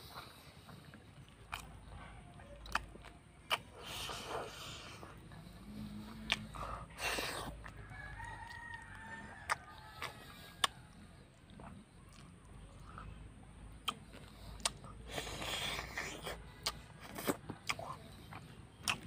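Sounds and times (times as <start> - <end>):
person eating by hand: 0.0 - 19.0
rooster crowing: 7.7 - 11.0.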